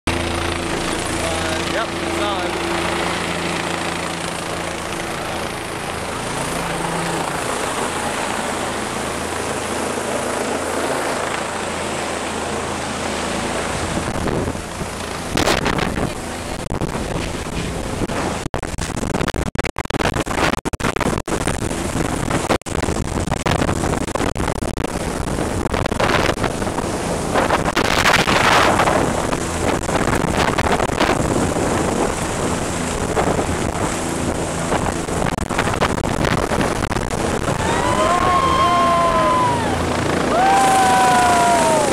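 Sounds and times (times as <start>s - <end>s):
helicopter rotor thrum: 0.1s - 19.4s, 20.3s - 41.9s
wind noise on microphone: 13.4s - 41.9s.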